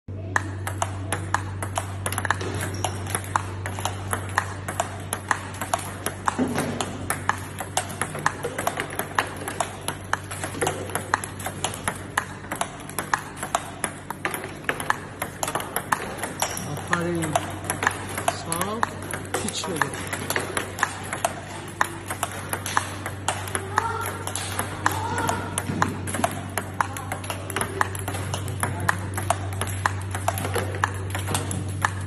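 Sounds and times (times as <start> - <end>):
table tennis ball rally: 0.2 - 32.0.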